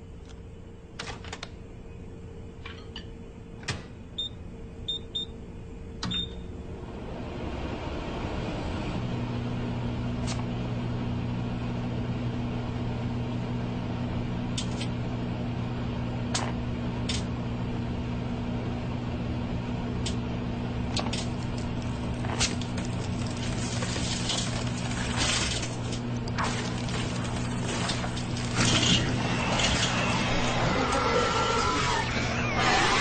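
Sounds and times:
microwave oven humming: 0.0s - 33.0s
phone sparking snaps and crackling: 20.9s - 29.0s.

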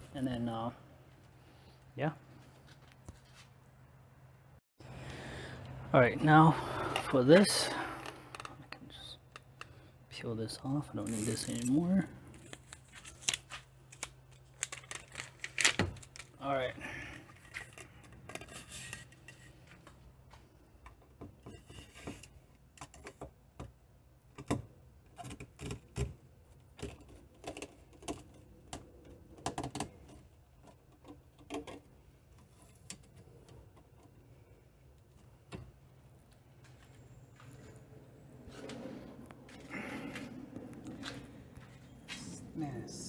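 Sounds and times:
plastic pipe clicking and knocking: 20.8s - 34.2s
steady low hum: 32.0s - 43.0s.

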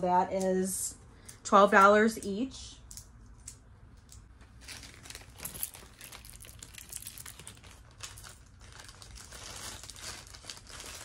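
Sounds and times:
jewelry rustling and clicking: 1.2s - 9.3s.

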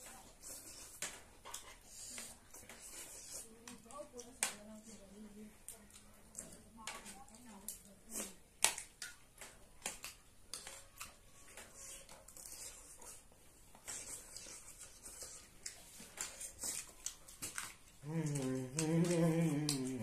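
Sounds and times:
chewing and slurping noodles: 10.6s - 20.0s
person making drawn-out vocal sound: 18.0s - 20.0s.

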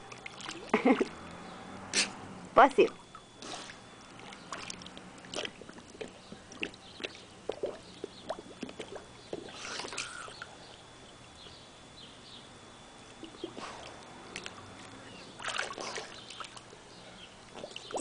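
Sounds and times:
dog splashing in water: 15.4s - 16.6s.

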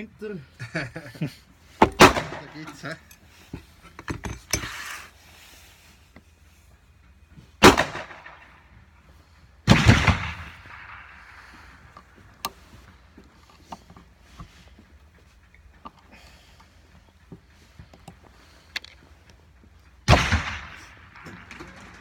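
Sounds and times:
loud gunshots with echo: 1.9s - 2.6s, 7.6s - 8.4s, 9.7s - 11.4s, 20.1s - 21.5s.

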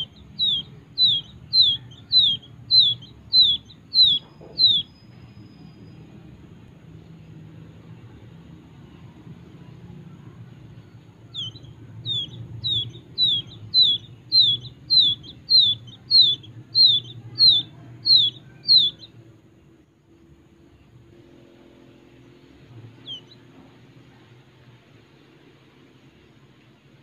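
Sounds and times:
quail chick peeping: 0.0s - 5.5s, 10.4s - 19.3s, 22.5s - 24.5s.

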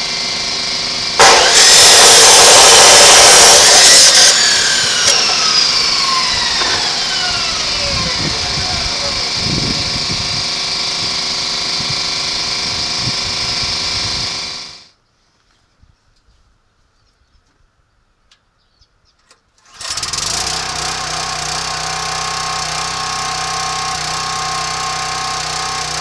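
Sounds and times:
chop saw cutting steel: 0.0s - 14.9s, 19.6s - 26.0s
saw motor winding down: 0.0s - 14.9s, 19.6s - 26.0s.

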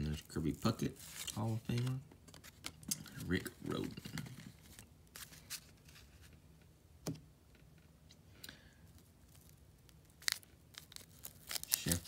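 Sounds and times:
handling of cards and card pack: 0.0s - 6.4s, 8.9s - 12.0s.

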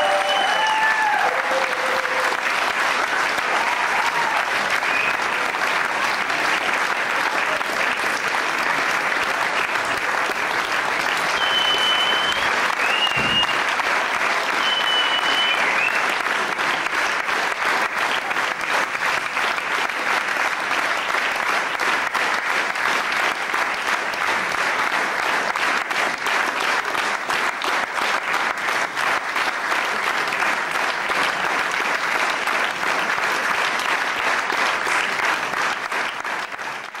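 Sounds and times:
audience clapping: 0.0s - 37.0s
short high whistle: 11.3s - 13.6s, 14.5s - 16.1s.

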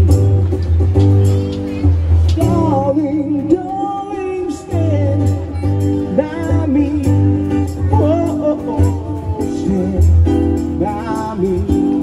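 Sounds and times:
amplified guitar: 0.0s - 12.0s
person singing: 2.4s - 12.0s.

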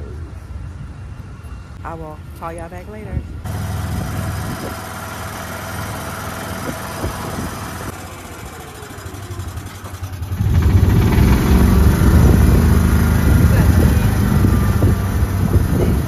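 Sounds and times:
golf cart motor humming: 3.4s - 16.0s.

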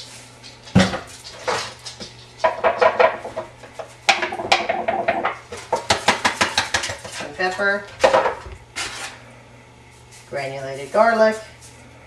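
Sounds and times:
kitchenware clatter: 0.4s - 9.2s.

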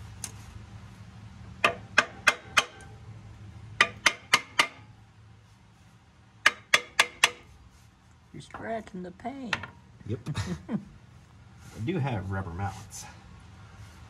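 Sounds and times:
hammer tapping metal: 1.6s - 3.0s, 3.8s - 4.9s, 6.4s - 7.5s.

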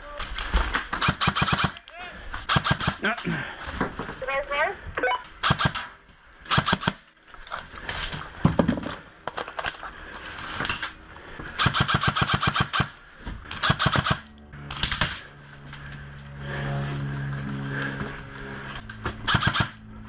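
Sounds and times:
airsoft rifle full-auto bursts: 1.0s - 1.8s, 2.4s - 3.1s, 5.4s - 5.9s, 6.5s - 7.0s, 11.6s - 14.3s, 19.3s - 19.8s.

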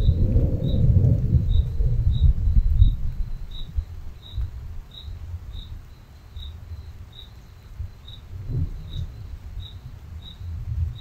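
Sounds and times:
low uneven rumble: 0.0s - 5.8s
cricket chirping: 0.0s - 11.0s.

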